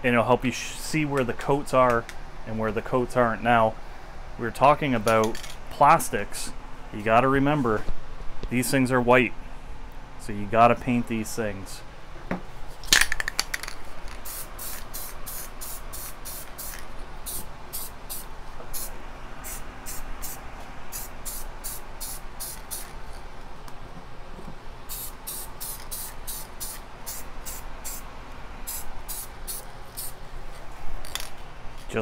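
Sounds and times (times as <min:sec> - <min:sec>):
spray paint can hissing: 0:13.6 - 0:23.0, 0:24.9 - 0:28.0, 0:28.7 - 0:30.2.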